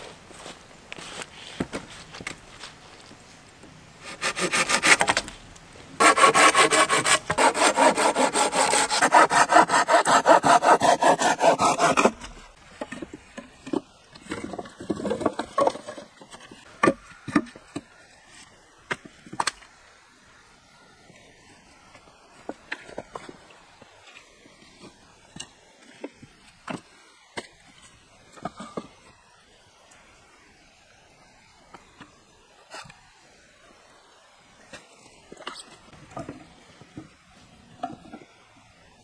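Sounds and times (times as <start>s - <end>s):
hand saw cutting a log: 4.0s - 5.3s, 6.0s - 12.4s.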